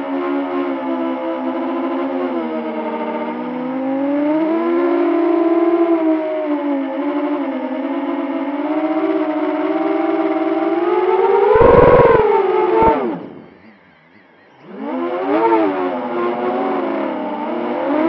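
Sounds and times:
drone motors whining: 11.6s - 12.2s.

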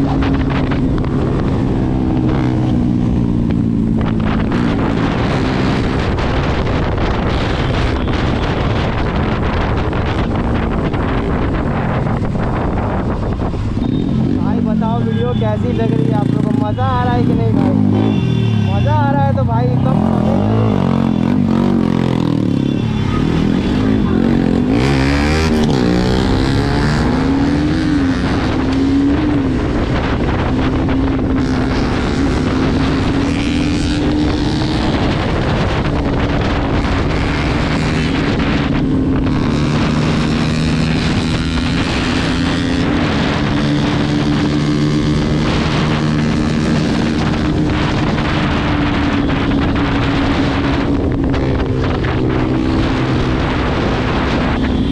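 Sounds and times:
motorcycle engine revving: 0.0s - 54.9s.

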